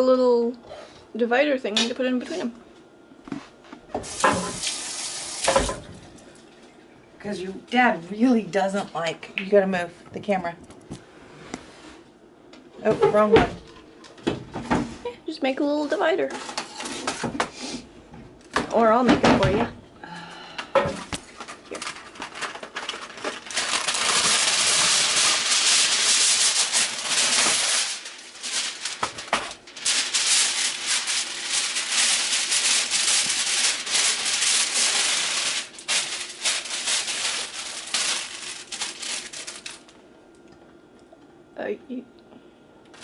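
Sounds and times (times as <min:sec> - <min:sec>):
aluminum foil crinkling: 0:04.0 - 0:05.9, 0:21.2 - 0:40.0.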